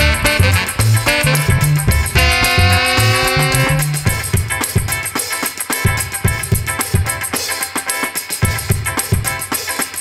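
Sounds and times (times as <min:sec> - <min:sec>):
instrumental music with pulsing bass: 0:00.0 - 0:05.2.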